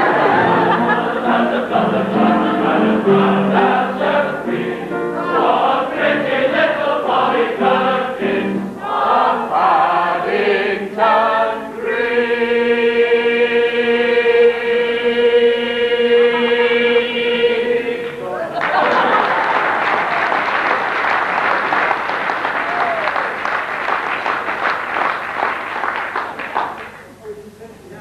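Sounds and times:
keyboard accompaniment: 0.0s - 19.1s
male choir singing in harmony: 0.0s - 19.2s.

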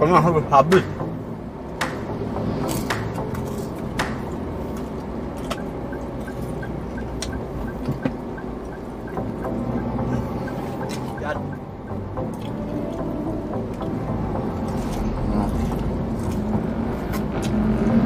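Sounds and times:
car cabin road rumble: 0.0s - 18.0s
faint regular ticking: 5.0s - 12.5s.

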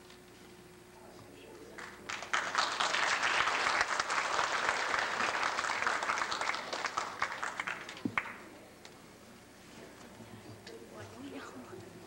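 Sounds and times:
audience applauding: 1.8s - 8.4s.

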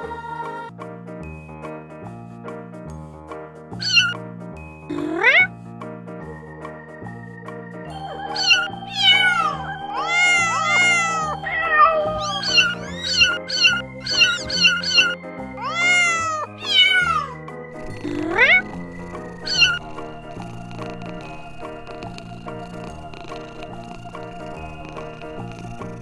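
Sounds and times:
background music: 0.0s - 26.0s
kittens mewing: 3.8s - 4.2s, 4.9s - 5.5s, 8.0s - 21.5s.

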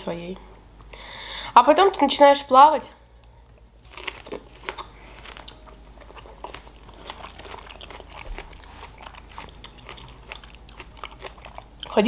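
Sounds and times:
chewing strawberry: 3.9s - 12.0s.

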